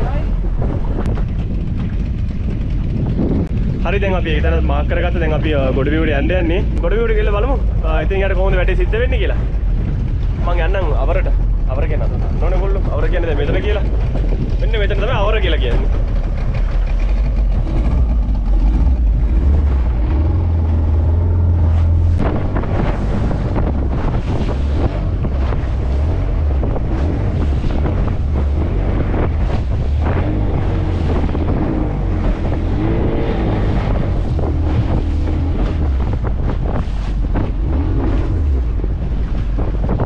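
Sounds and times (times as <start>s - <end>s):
outboard motor droning: 0.0s - 40.0s
waves splashing against hull: 0.0s - 40.0s
wind buffeting microphone: 0.0s - 40.0s.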